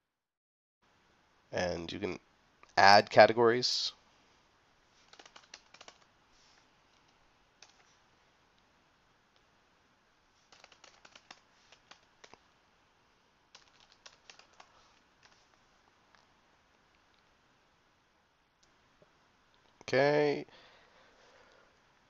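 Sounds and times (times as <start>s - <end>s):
faint keyboard typing: 5.0s - 8.0s, 10.4s - 12.5s, 13.5s - 16.3s.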